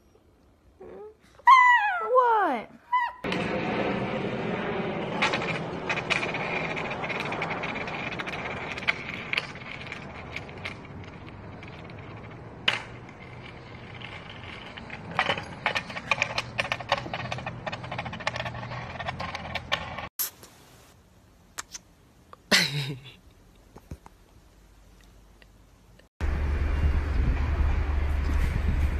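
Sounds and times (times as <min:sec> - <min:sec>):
skateboard wheels rolling on concrete: 0:02.9 - 0:20.1, 0:26.2 - 0:28.9.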